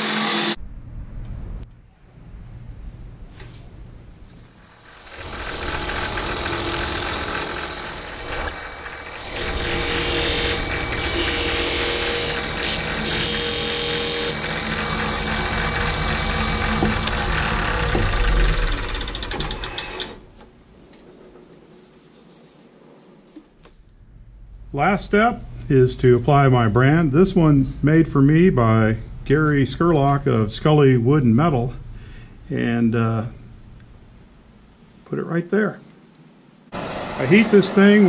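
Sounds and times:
wood lathe scraping and whirring: 0.0 - 0.6, 4.7 - 20.4, 36.8 - 38.0
high squeal: 4.7 - 15.1.

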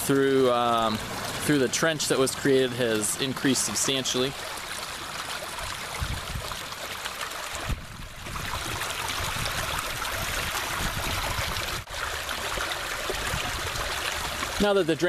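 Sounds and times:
water rushing through a trench: 0.0 - 15.0.

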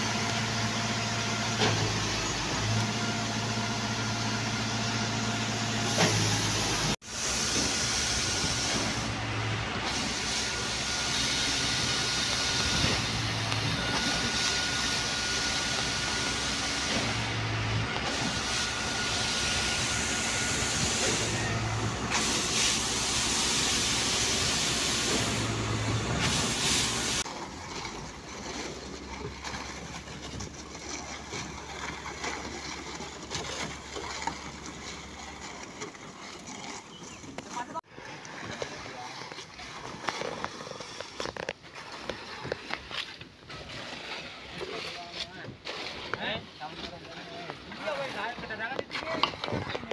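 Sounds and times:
pump hiss and low thump: 0.0 - 2.8, 5.8 - 27.3
concrete pump engine drone: 0.0 - 49.9.

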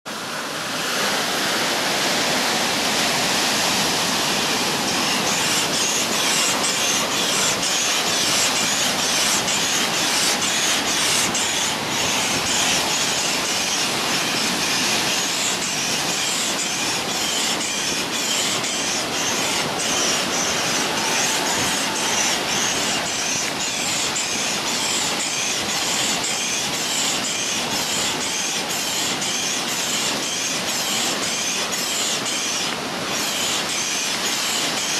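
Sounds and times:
air pump running: 0.1 - 34.9
ocean surf: 0.1 - 34.9.

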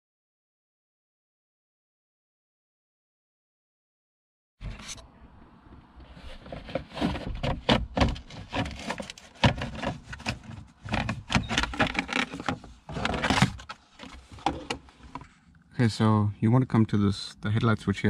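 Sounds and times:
plastic cover clicking and rattling: 6.4 - 15.2.

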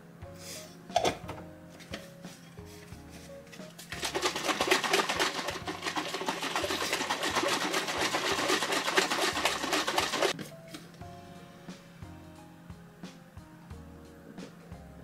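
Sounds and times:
shaker bottle sloshing rattles: 3.8 - 10.4.

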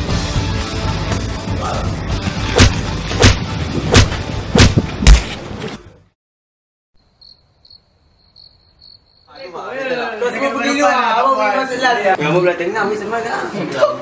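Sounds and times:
punch sound effects: 2.5 - 5.5
crickets chirping: 7.0 - 9.8.

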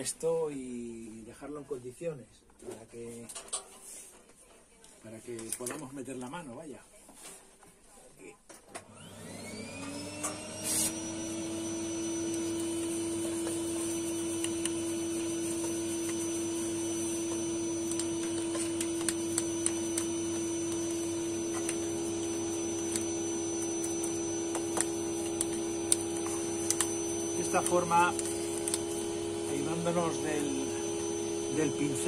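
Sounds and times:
vacuum cleaner motor whine: 8.8 - 32.0.

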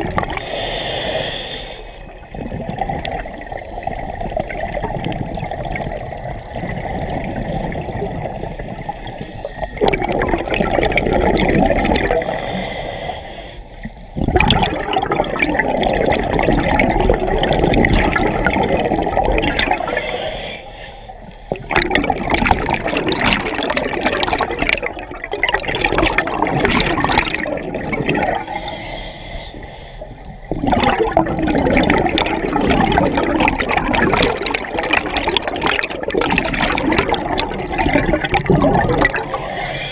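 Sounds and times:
exhaled bubbles gurgling underwater: 0.0 - 39.9
regulator inhalation hiss: 0.4 - 2.1, 12.2 - 14.0, 19.8 - 21.4, 28.4 - 30.3, 39.2 - 39.9.

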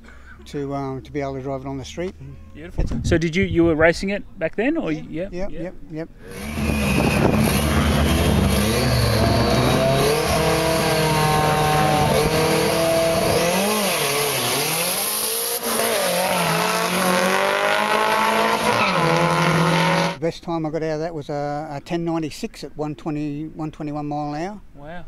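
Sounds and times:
drag car engines revving: 6.2 - 20.2.

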